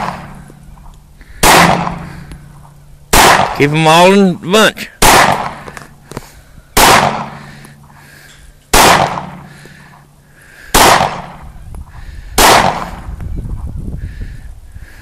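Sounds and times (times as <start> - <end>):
pistol shots: 0.0 - 0.4, 1.4 - 2.2, 3.1 - 3.8, 5.0 - 5.9, 6.8 - 7.7, 8.7 - 9.6, 10.7 - 11.4, 12.4 - 13.1.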